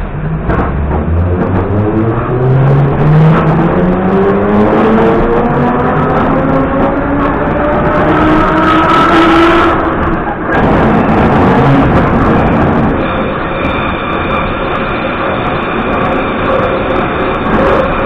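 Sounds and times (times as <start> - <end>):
train wheel and running noise: 0.0 - 3.8, 9.7 - 18.0.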